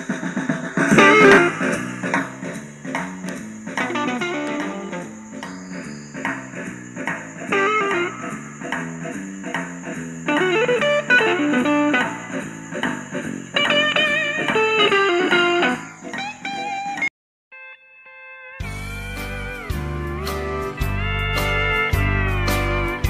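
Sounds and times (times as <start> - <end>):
plucked guitar over bass line: 0.9 - 2.5, 3.2 - 5.3, 10.3 - 17.7, 18.6 - 23.0.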